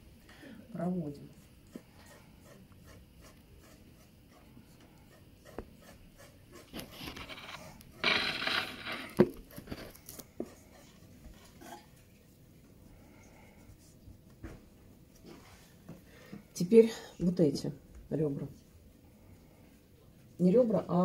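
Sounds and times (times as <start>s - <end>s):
pencil scratching on paper: 1.2s - 11.8s.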